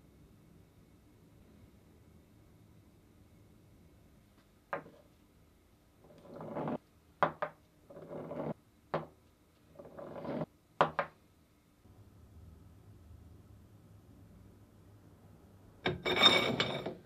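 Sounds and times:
metal scraping on wood: 6.1 - 6.8, 7.9 - 8.6, 9.8 - 10.5, 15.9 - 17.0.

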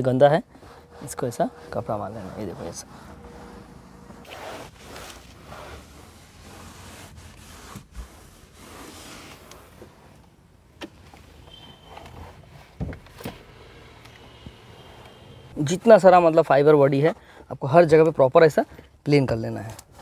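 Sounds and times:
cloth wiping hard plastic: 0.0 - 10.1.

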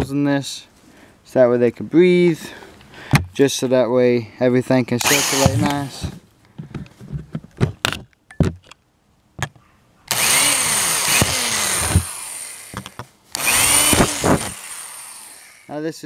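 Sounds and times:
power drill boring plastic: 5.0 - 6.1, 10.1 - 15.7.

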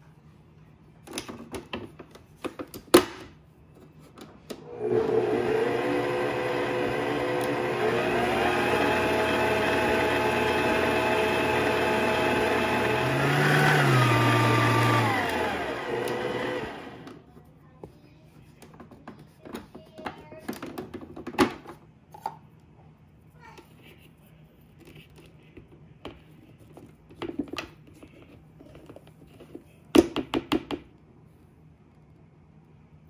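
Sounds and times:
electric mixer whipping: 4.7 - 17.1.

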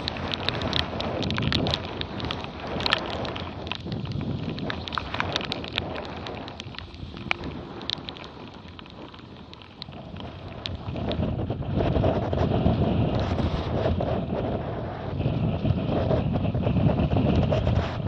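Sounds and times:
water drops ticking on camera: 0.0 - 11.2
rushing water: 0.0 - 11.9
wind: 0.0 - 18.0.

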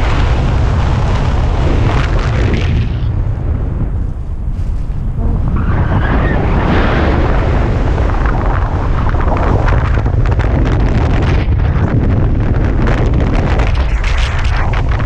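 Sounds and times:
wind buffeting microphone: 0.0 - 15.0
rapid fluttering ticks: 13.6 - 15.0.

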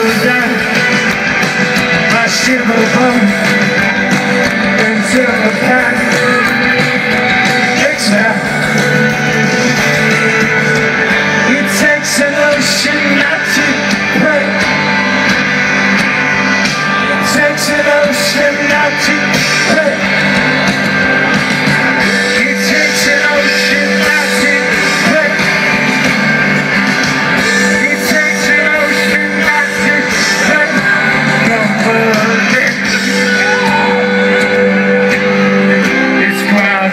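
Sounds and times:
rock band playing live: 0.0 - 36.9.

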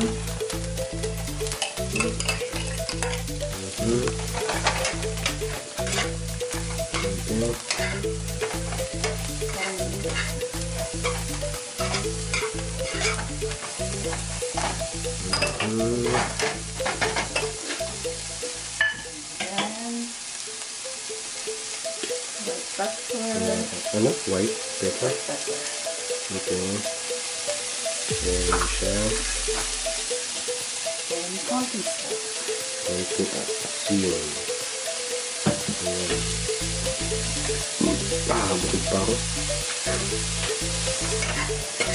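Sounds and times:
leeks sizzling in frying pan: 0.0 - 41.9
spoon scraping a pan: 4.2 - 10.4, 11.0 - 17.9, 40.5 - 41.9.

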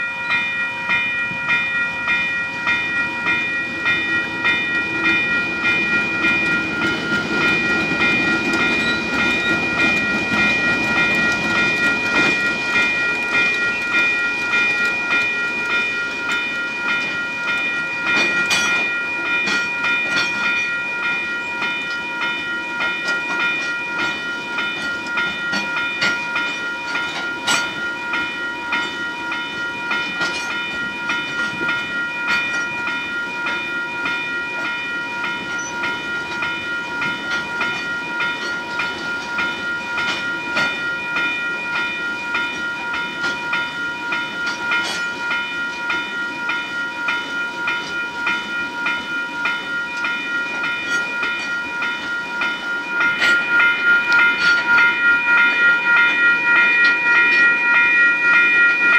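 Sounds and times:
electronic level-crossing bell: 0.0 - 58.9
train wheels clanking: 0.0 - 58.9
diesel locomotive rumbling: 0.4 - 21.2.

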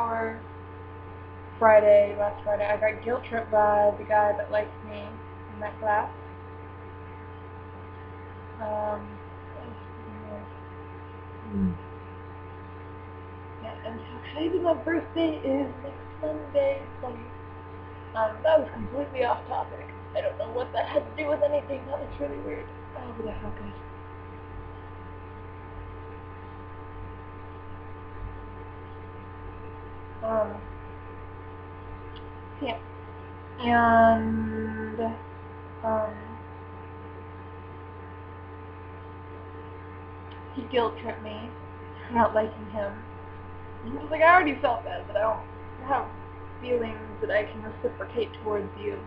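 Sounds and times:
electrical mains hum: 0.0 - 49.0
brief vocal sound: 11.4 - 11.8
woman making wordless sounds: 18.2 - 23.8, 33.6 - 35.2.

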